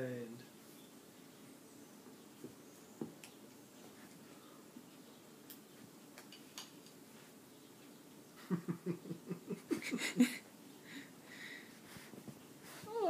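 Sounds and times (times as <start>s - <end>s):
woman laughing: 8.4s - 10.5s
cats wrestling on carpet: 11.7s - 13.0s.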